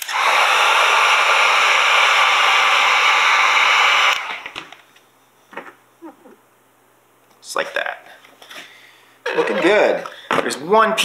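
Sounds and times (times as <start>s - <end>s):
heat gun blowing air: 0.0s - 4.6s.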